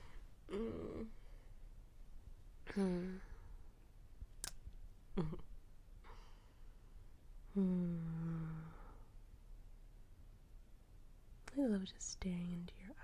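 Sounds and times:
woman's soft wordless vocal sounds: 0.5 - 1.2, 2.6 - 3.4.

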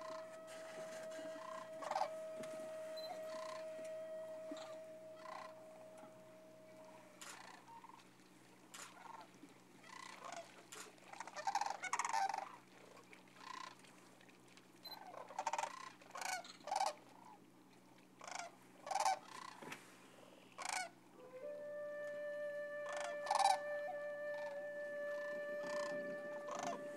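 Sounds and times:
music: 0.0 - 7.2, 21.2 - 26.9
cranes calling: 0.0 - 7.7, 20.6 - 26.9.

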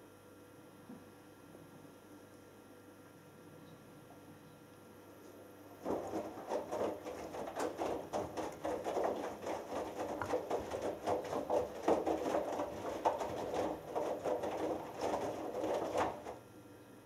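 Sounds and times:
washing machine drum tumbling laundry: 5.8 - 16.5.

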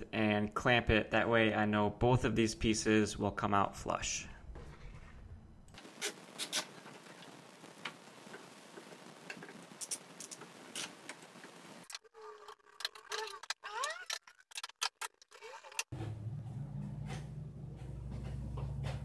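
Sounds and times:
short squeaks: 12.0 - 14.5.

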